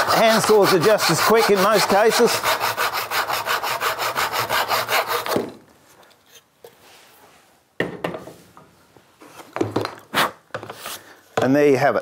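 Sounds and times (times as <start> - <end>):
hand saw cutting wood: 0.0 - 5.4.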